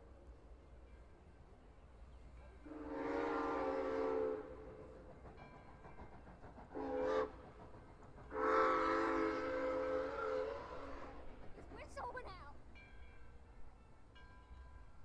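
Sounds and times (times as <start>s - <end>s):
steam locomotive chime whistle: 2.5s - 7.6s, 8.3s - 11.3s.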